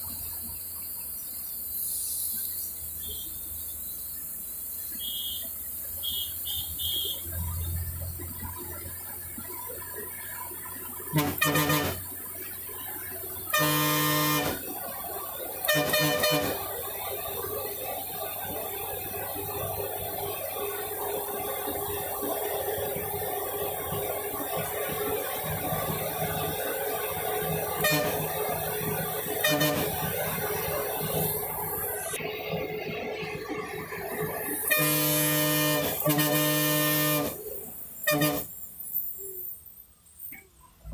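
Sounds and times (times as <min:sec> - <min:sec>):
bus engine running uphill: 0:00.0 - 0:40.9
bus horn honking: 0:05.0 - 0:07.4, 0:11.1 - 0:12.2, 0:13.5 - 0:14.7, 0:15.6 - 0:16.8, 0:27.5 - 0:31.4, 0:34.7 - 0:37.4, 0:38.0 - 0:38.5.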